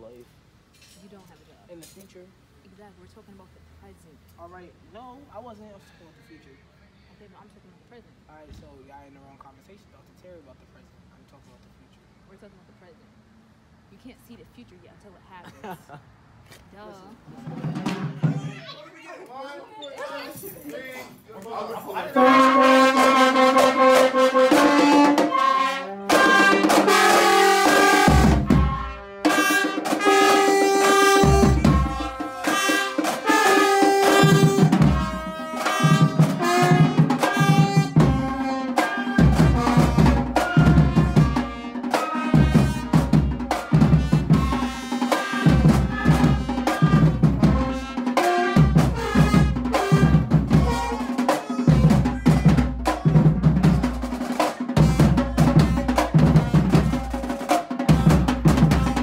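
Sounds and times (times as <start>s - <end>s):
steady drum beat: 17.2s - 18.8s, 22.0s - 59.0s
marching band brass chord: 22.0s - 59.0s.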